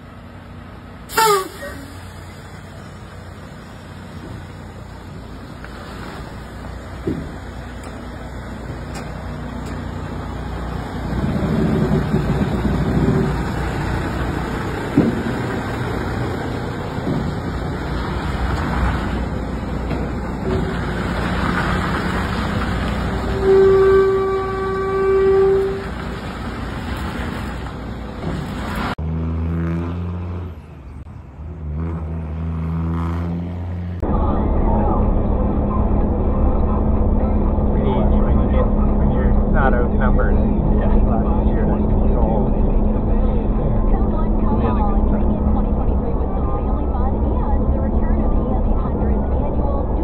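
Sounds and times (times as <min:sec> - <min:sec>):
truck engine and road noise: 0:00.0 - 0:50.0
vehicle horn: 0:01.1 - 0:02.0, 0:23.2 - 0:26.0.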